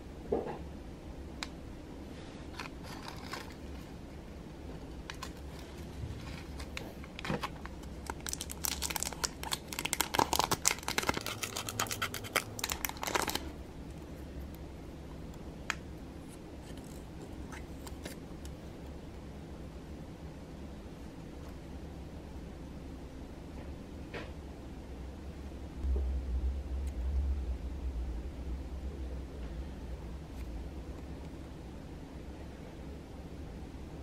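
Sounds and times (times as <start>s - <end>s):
plastic bag crinkling and tearing: 5.1s - 13.5s.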